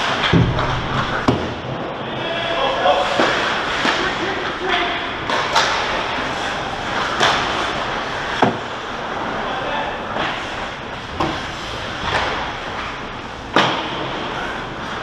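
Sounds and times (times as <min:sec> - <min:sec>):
sticks and puck clacking: 0:05.2 - 0:06.1, 0:07.0 - 0:08.7.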